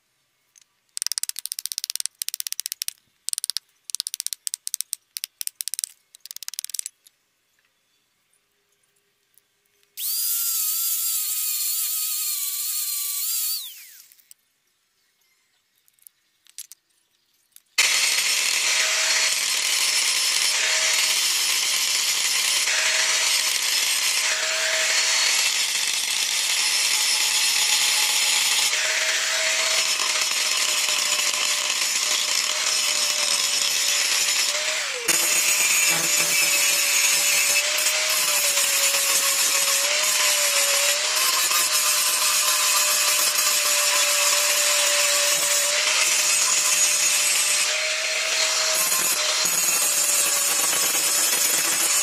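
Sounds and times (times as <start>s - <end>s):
angle grinder grinding wood: 10.0s - 14.3s, 17.8s - 52.0s
electric tool motor spinning: 10.0s - 14.4s, 17.8s - 52.0s.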